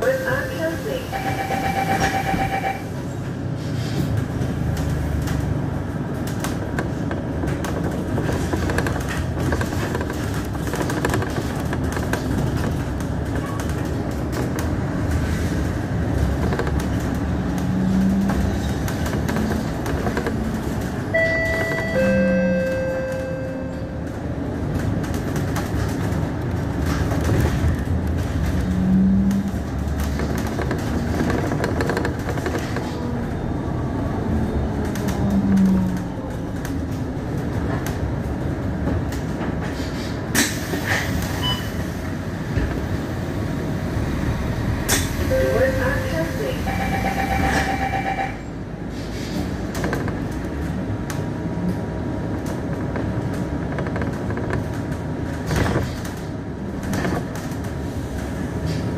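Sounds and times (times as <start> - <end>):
bus engine and road rumble: 0.0 - 58.9.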